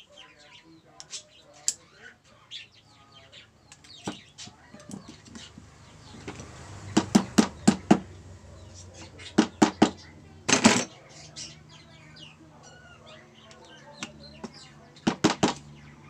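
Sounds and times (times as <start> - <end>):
metal clatter: 9.4 - 10.9
screwdriver and pliers tapping metal: 10.5 - 10.9.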